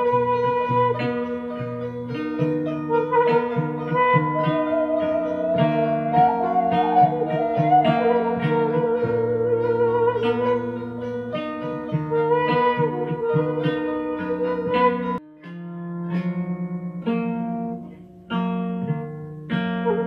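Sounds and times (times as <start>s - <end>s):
plucked notes: 0.0s - 20.0s
wavering sustained melody: 2.9s - 15.2s.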